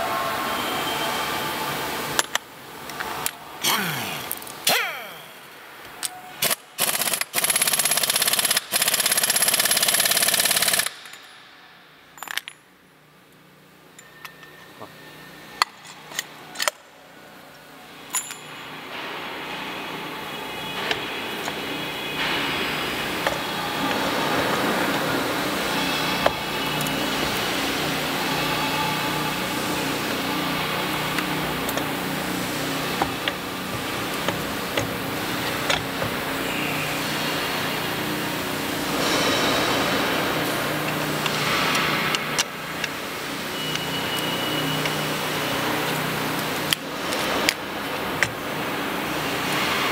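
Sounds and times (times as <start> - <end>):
steady background hum: 0.0 - 49.9
pneumatic impact wrench rattling: 3.6 - 5.1, 6.4 - 11.3
metallic clicks and clinks: 12.2 - 12.7, 18.1 - 18.7.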